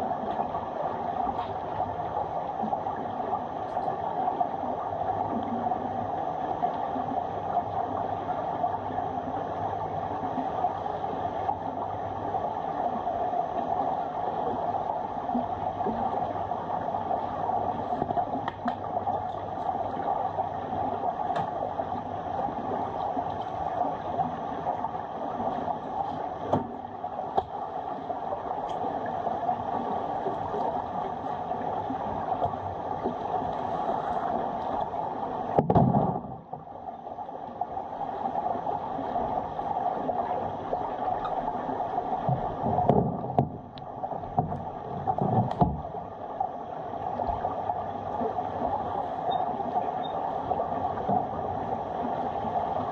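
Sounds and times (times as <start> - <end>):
muffled underwater rushing hum: 0.0 - 52.9
dull underwater thumps: 26.5 - 27.6, 35.5 - 36.6, 42.2 - 46.0.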